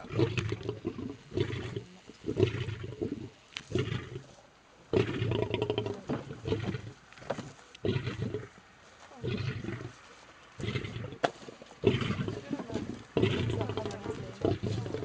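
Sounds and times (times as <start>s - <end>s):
lion calling: 11.8s - 15.0s.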